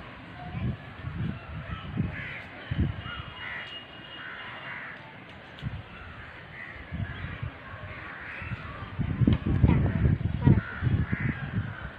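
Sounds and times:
crows cawing: 1.7 - 5.1, 5.9 - 8.7, 10.5 - 11.9.

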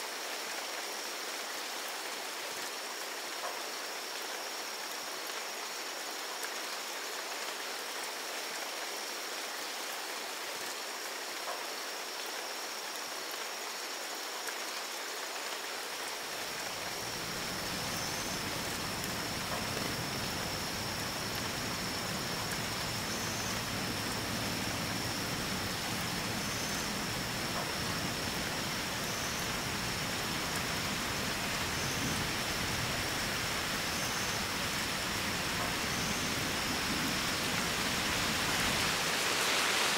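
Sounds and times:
rain on foliage: 0.0 - 39.9
high-pitched insect drone: 16.6 - 38.8.

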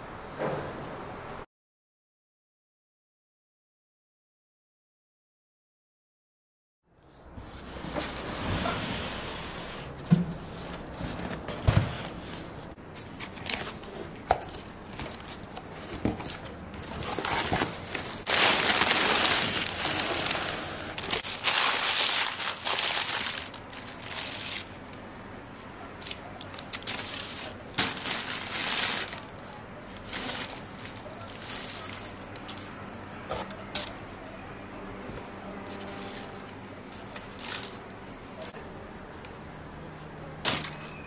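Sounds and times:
packing paper rustling: 13.0 - 32.8, 33.6 - 34.1, 35.7 - 38.6.

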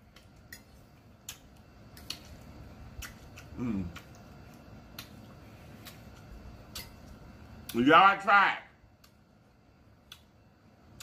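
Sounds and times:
fork clicks while chewing: 0.1 - 2.4, 3.0 - 5.2, 5.8 - 7.8, 10.0 - 10.3
person humming mm: 3.5 - 4.0.

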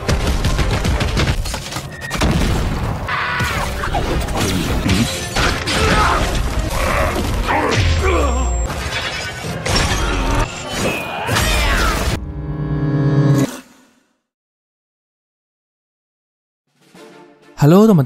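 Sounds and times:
battle soundtrack music: 0.0 - 9.8
crashes and shattering: 0.0 - 12.2.

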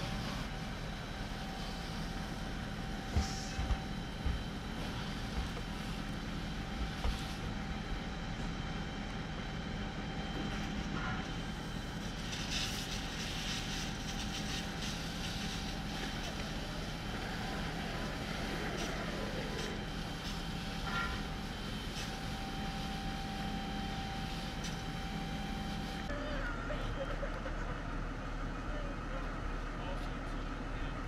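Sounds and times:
hiss: 12.1 - 22.8.

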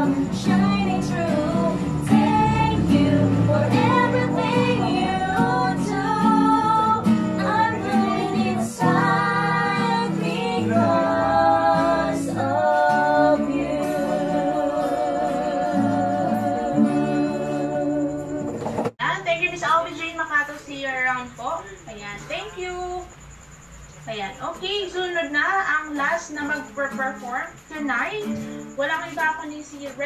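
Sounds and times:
women singing: 0.0 - 18.9
acoustic guitars: 0.0 - 30.0.

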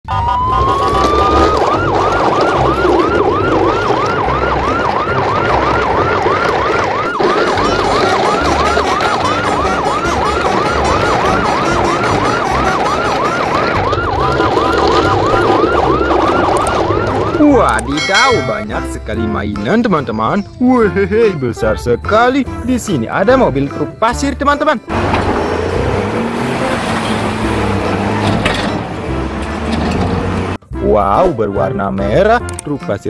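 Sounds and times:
siren wailing and yelping: 0.1 - 18.6.

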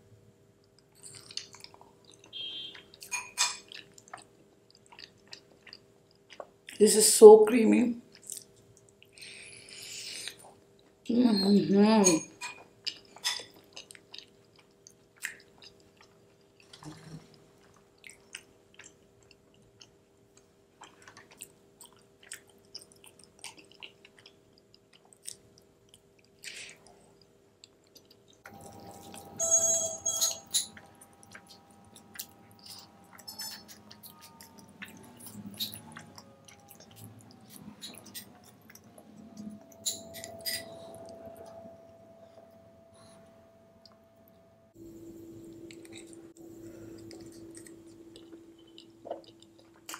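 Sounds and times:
chewing and lip smacking: 0.6 - 6.8, 8.1 - 9.2, 12.5 - 29.3, 30.5 - 41.6, 46.8 - 49.9
metal spoon scraping glass bowl: 29.4 - 30.8.

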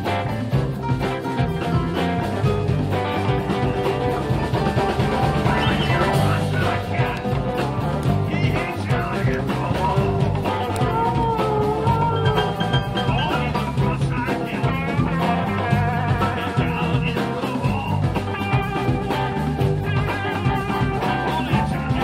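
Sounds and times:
blues band playing: 0.0 - 22.0
electric guitar: 0.0 - 22.0.

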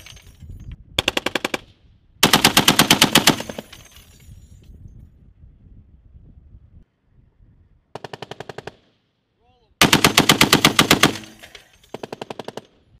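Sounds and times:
heavy machine gun bursts: 9.8 - 12.7.

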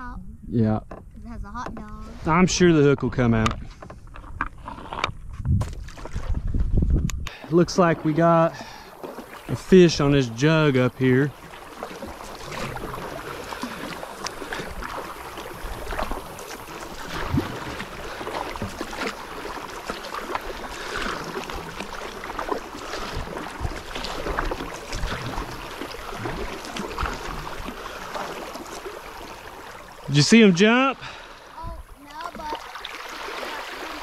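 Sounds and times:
paddle strokes splashing water: 3.3 - 6.7, 7.3 - 34.0
water washing along hull: 7.3 - 34.0
water dripping from paddle: 10.4 - 34.0.

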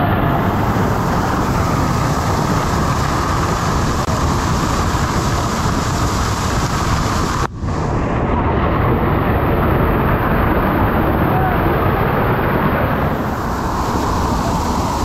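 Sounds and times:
waterfall rushing onto rocks: 0.1 - 7.5.

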